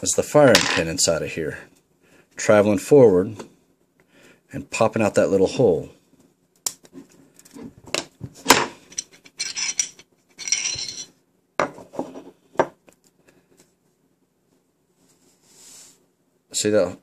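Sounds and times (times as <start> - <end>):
metal scraping on metal: 8.8 - 11.1.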